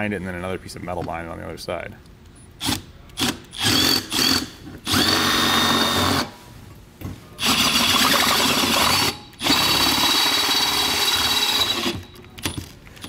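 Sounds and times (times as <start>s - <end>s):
cordless drill boring through metal: 2.6s - 6.3s, 7.4s - 12.1s.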